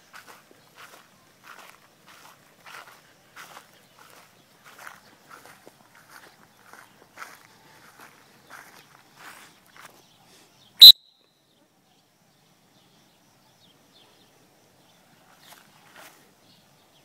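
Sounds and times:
footsteps in grass: 0:00.0 - 0:10.0, 0:15.2 - 0:16.4
loud sharp whistle blast: 0:10.8 - 0:11.2.

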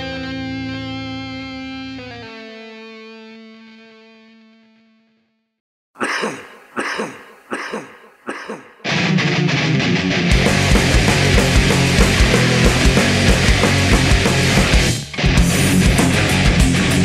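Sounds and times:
sharp count-in hits: 0:06.0 - 0:08.9
thrash metal band playing: 0:08.9 - 0:17.0.

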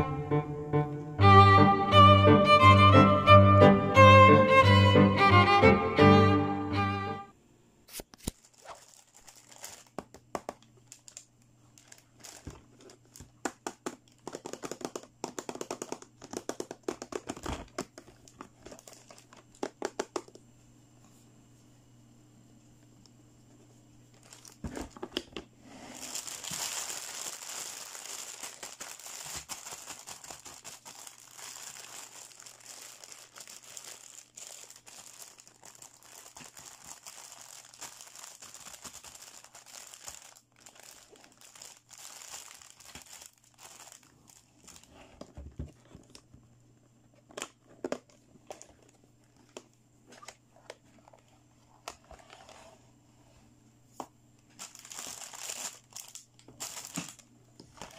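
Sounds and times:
plastic bag crinkling: 0:08.2 - 0:20.3, 0:24.1 - 0:25.2, 0:25.8 - 0:45.2, 0:54.5 - 0:57.9.

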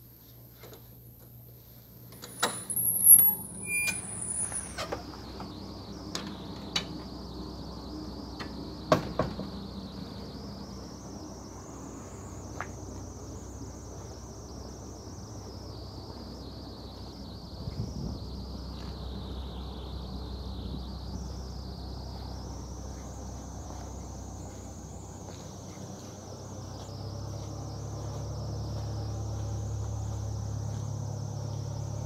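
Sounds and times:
faint high whine: 0:00.0 - 0:32.0
airport ramp noise: 0:02.1 - 0:07.1
glass door opening and shutting: 0:02.2 - 0:05.0
door squeal: 0:02.2 - 0:05.1.

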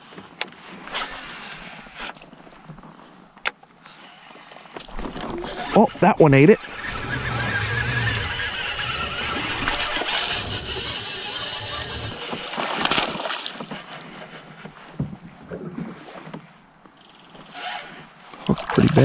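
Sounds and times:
water splashing: 0:04.9 - 0:14.3, 0:18.3 - 0:19.0
fishing reel cranking: 0:05.0 - 0:12.6.

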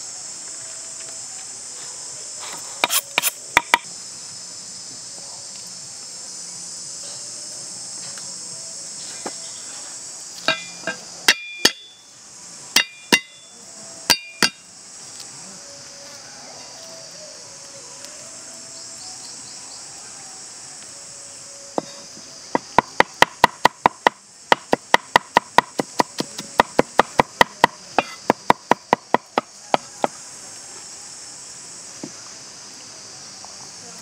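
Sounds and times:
insects droning: 0:00.0 - 0:34.0
cleaver chopping on wooden block: 0:02.8 - 0:03.9, 0:22.5 - 0:30.2.

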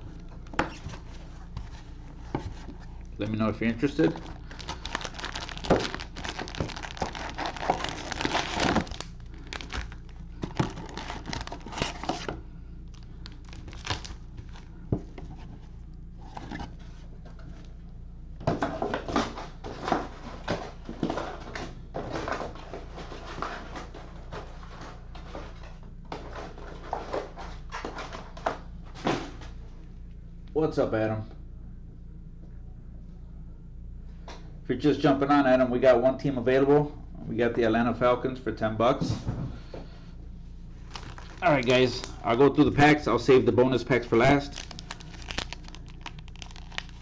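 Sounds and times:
cellophane card packs crinkling: 0:00.0 - 0:16.8, 0:40.8 - 0:47.0.

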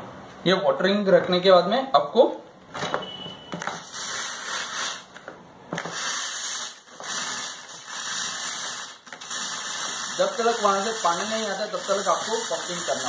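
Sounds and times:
fogging machine pump hissing: 0:05.8 - 0:13.0.

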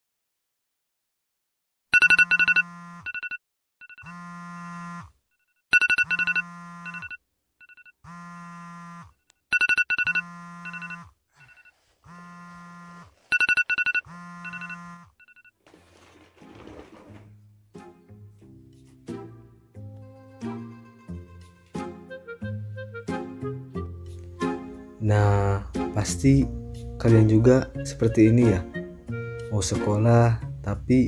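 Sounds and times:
smartphone alarm melody: 0:02.0 - 0:05.0, 0:05.7 - 0:15.5.

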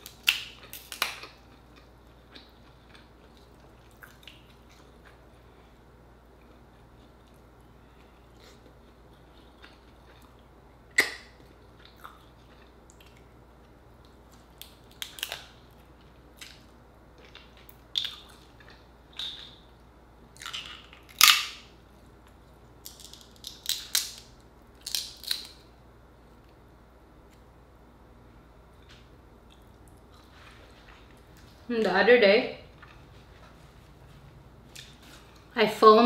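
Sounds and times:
crab shell cracking: 0:00.0 - 0:01.4, 0:20.4 - 0:21.7, 0:22.8 - 0:25.6.

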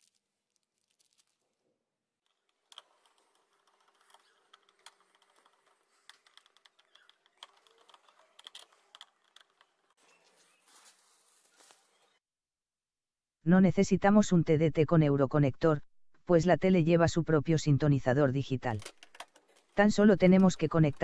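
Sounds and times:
plastic wrap rustling: 0:00.0 - 0:01.7, 0:02.3 - 0:12.1.

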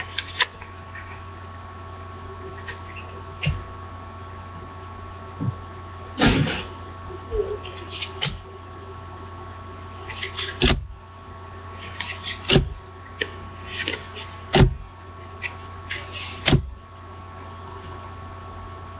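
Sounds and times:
electrical hum: 0:00.0 - 0:18.9
cards flipped by hand: 0:00.1 - 0:00.6.

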